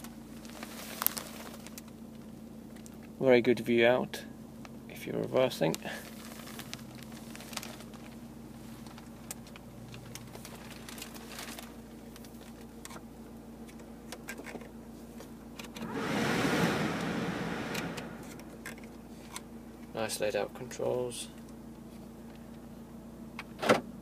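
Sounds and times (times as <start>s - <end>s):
engine idling hum: 15.7s - 19.2s
heater fan air rush: 15.8s - 18.9s.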